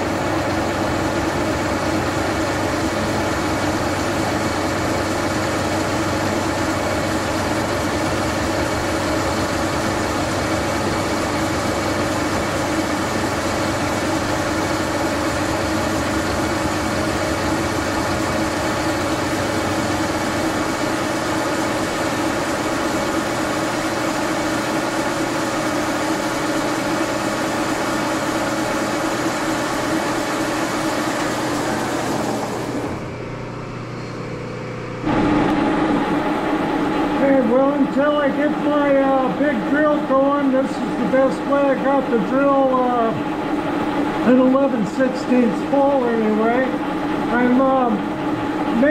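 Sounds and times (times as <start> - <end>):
milling machine cutter drilling: 0.0 - 33.2.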